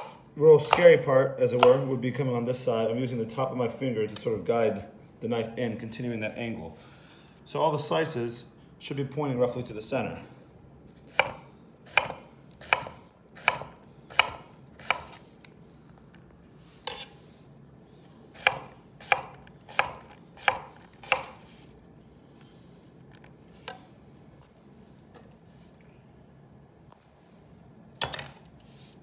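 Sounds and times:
knife chopping on wooden board: 1.6 - 1.8, 11.0 - 15.2, 18.3 - 21.5.

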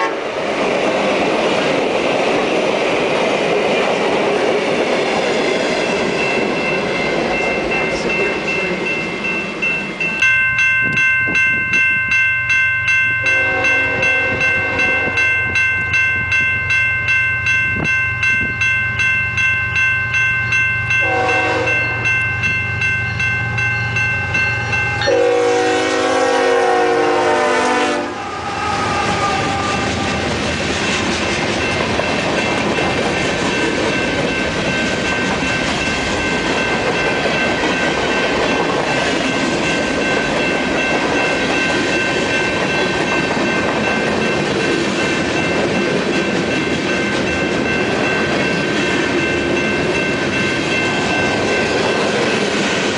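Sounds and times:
locomotive air horn: 0.0 - 0.2, 13.2 - 15.2, 21.0 - 21.9, 25.0 - 30.3
warning bell ringing: 5.4 - 27.2, 31.5 - 52.9.

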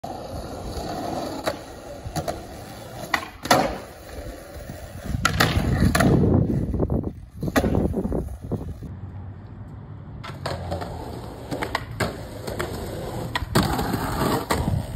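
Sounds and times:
skateboard grinding concrete ledge: 0.0 - 8.8, 10.2 - 14.9
skateboard wheels rolling on concrete: 0.0 - 14.9
skateboard tail clacks: 1.4 - 4.0, 4.7 - 8.4, 10.2 - 14.9.

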